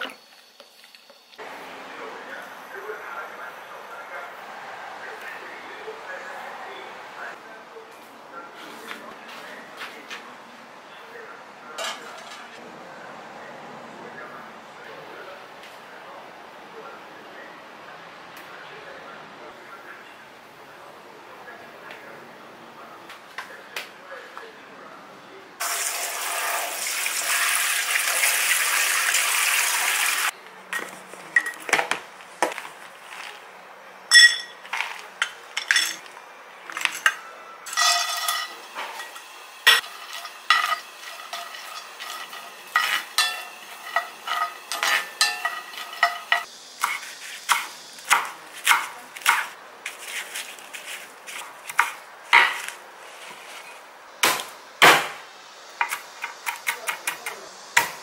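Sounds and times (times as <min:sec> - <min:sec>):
utensils clinking on dishes: 0:11.8 - 0:12.6, 0:30.7 - 0:32.0, 0:34.1 - 0:50.0
steady hiss: 0:38.5 - 0:48.8.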